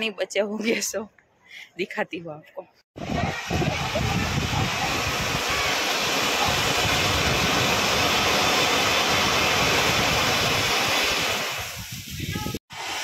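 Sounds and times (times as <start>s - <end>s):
firework fountain hissing: 3.0s - 13.0s.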